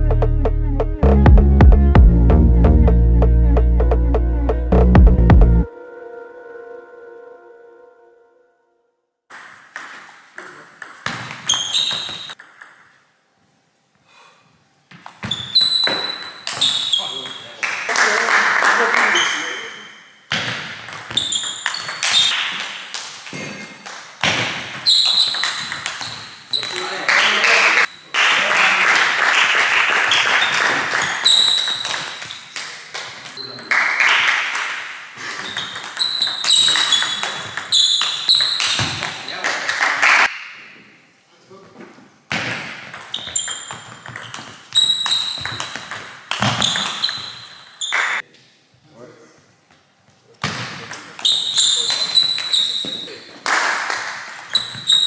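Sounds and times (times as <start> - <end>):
short high squeaks: 11.5 - 12.4, 15.2 - 17.5, 24.8 - 26.9, 30.1 - 32.6, 35.4 - 39.3, 43.1 - 45.7, 46.6 - 48.2, 51.2 - 53.3, 54.5 - 55.0.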